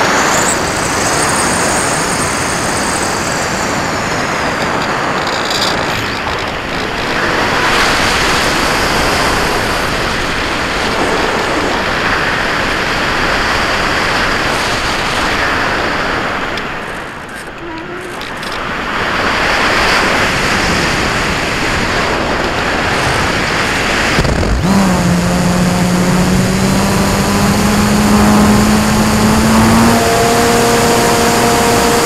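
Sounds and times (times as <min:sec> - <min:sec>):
airflow rushing over camera: 0:22.9 - 0:32.0
electric motor whine: 0:23.2 - 0:32.0.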